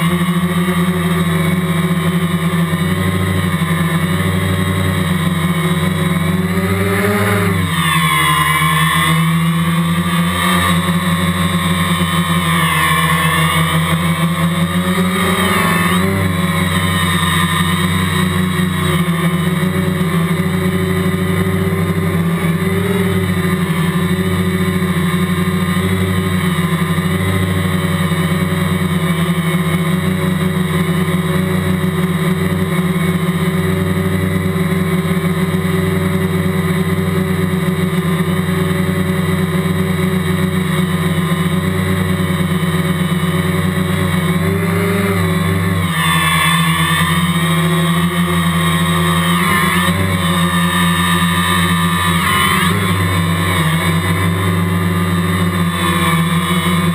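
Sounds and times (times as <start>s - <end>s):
drone propellers buzzing: 0.0s - 56.9s.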